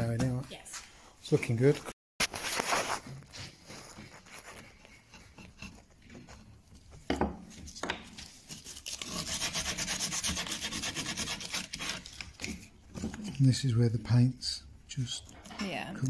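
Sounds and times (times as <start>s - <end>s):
sandpaper rubbing on wood: 8.5s - 12.1s.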